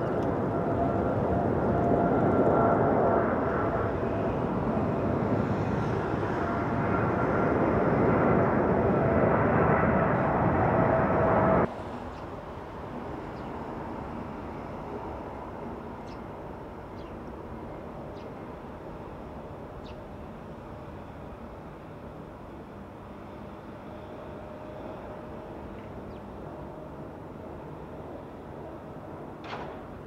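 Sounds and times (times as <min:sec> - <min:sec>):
jet engines roaring: 0:00.0 - 0:30.0.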